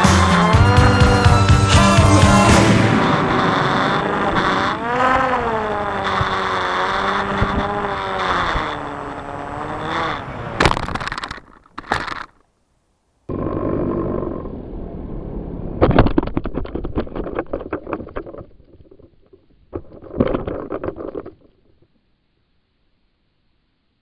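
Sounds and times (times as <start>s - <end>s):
model plane motor and propeller: 0.0s - 12.3s
loud crackles: 0.0s - 12.4s
wind rush: 2.1s - 10.5s.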